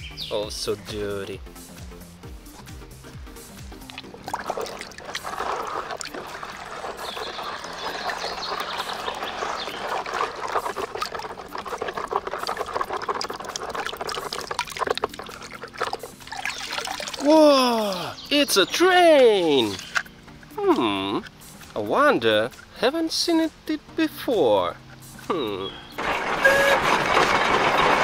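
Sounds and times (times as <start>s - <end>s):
water sloshing in plastic basin: 3.7s - 18.2s, 19.4s - 20.1s
water trickling off toy: 3.7s - 18.2s, 19.3s - 20.1s.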